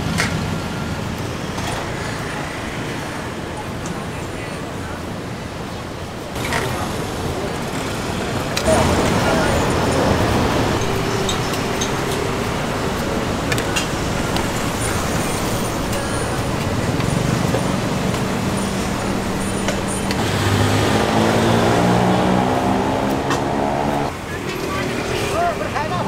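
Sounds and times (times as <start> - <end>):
street traffic noise: 0.0 - 26.0.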